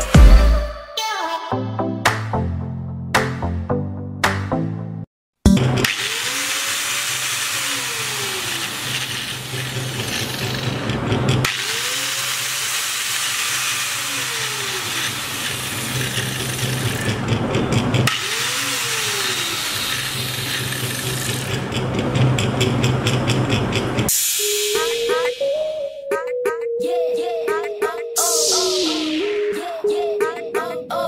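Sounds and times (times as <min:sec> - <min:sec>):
angle grinder running: 0:05.8 - 0:23.8.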